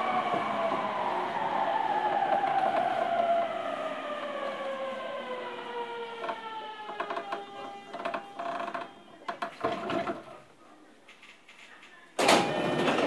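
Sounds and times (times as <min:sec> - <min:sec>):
train traction motor whine: 0:00.0 - 0:09.3.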